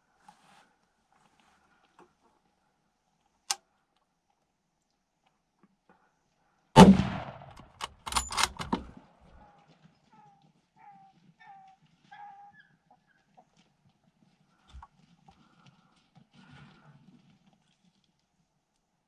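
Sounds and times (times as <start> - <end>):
quieter sharp gunshot cracks: 6.8 - 7.7
loud rifle shot: 6.8 - 8.2
sharp click: 7.5 - 8.9.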